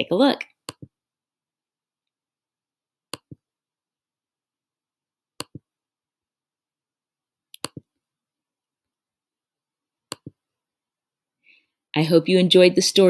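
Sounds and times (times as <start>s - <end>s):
computer mouse clicks: 3.1s - 3.4s, 5.4s - 5.6s, 7.5s - 7.9s, 10.1s - 10.4s.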